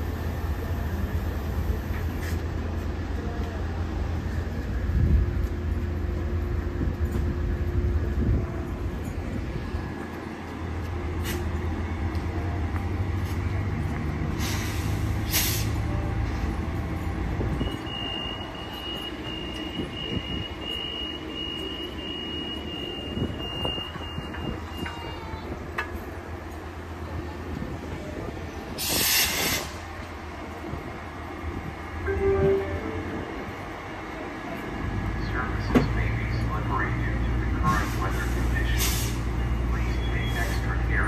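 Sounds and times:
train diesel rumble: 0.0s - 41.0s
high beep: 32.1s - 33.2s.

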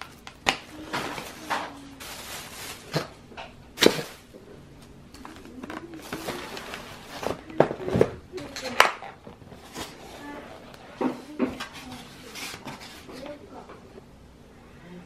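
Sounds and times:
plastic bag rustling: 0.6s - 3.2s, 3.8s - 4.4s, 5.1s - 13.4s.

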